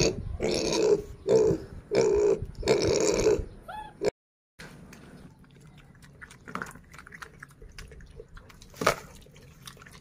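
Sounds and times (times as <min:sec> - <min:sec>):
animals chewing with wet smacks: 0:04.8 - 0:10.0.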